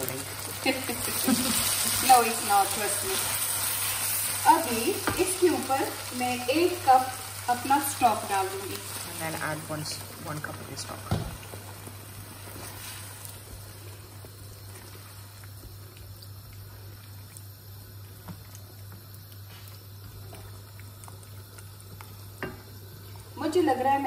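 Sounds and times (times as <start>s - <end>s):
sauce simmering in wok: 0.0s - 24.0s.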